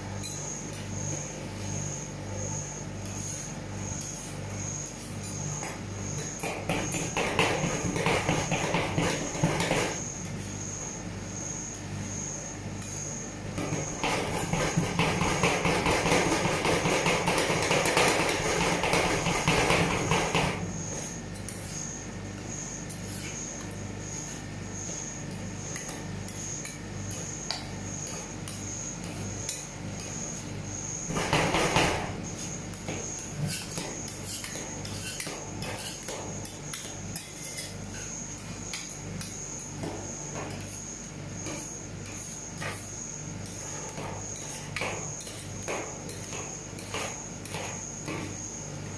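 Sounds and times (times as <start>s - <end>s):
metal spatulas chopping on metal: 43.4s - 48.3s.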